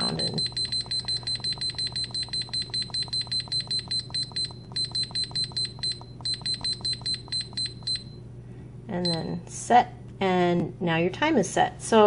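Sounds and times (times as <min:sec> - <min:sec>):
kitchen timer beeping rapidly: 0:00.0 - 0:08.2, 0:09.0 - 0:09.3.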